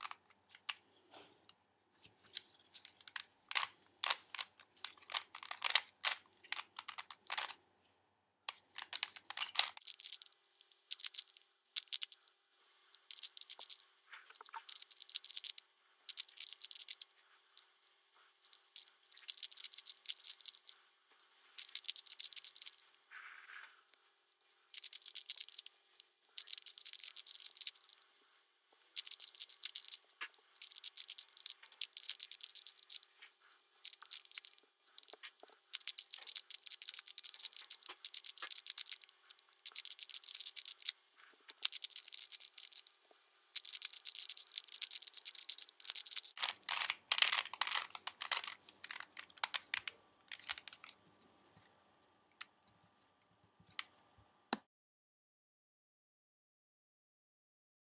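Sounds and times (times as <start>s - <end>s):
puzzle cube clicking and rattling: 3.0s - 7.6s, 8.5s - 51.0s.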